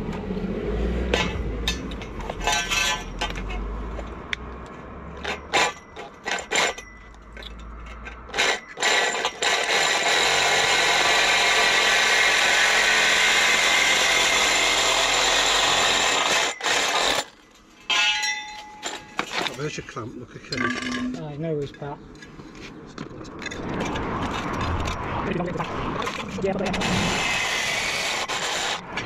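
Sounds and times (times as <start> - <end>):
tools clinking: 1.1 - 3.6, 17.6 - 19.6, 20.5 - 21.4
reciprocating saw cutting pipe: 26.7 - 29.0.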